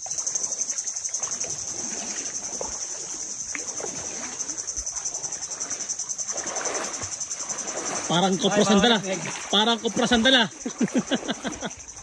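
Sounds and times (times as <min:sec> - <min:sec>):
high-pitched insect drone: 0:00.0 - 0:12.0
legs sloshing through water: 0:00.0 - 0:12.0.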